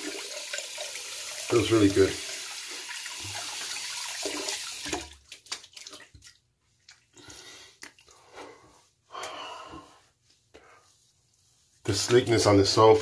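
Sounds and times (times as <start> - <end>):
water running from tap: 0.0 - 6.1
hand rubbing wet face: 5.3 - 13.0.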